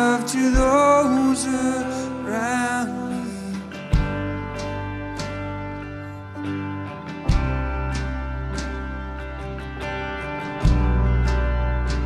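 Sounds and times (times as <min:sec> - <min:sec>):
held keyboard chords: 0:00.0 - 0:12.0
strummed electric guitar: 0:00.0 - 0:12.0
steady bass note: 0:04.0 - 0:12.0.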